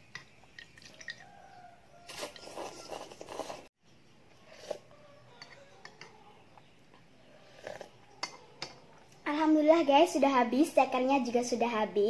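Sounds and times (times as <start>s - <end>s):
noodles being slurped: 2.1s - 3.7s, 7.4s - 8.0s.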